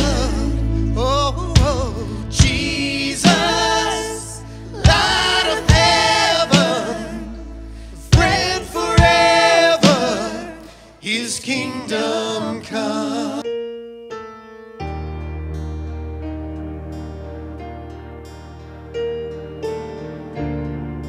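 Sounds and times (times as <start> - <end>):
people singing: 0.0 - 13.5
keyboard: 0.0 - 21.0
drums: 1.4 - 7.3, 8.0 - 10.8.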